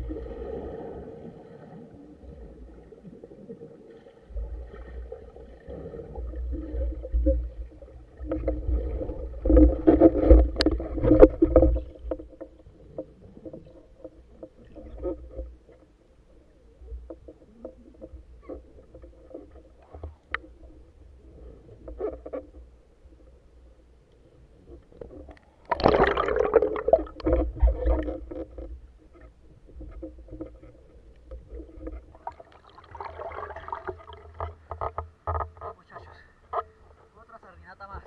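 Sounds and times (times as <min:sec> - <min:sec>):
underwater churning and bubbling: 0:00.0 - 0:37.1
small clicks and knocks: 0:34.1 - 0:37.0.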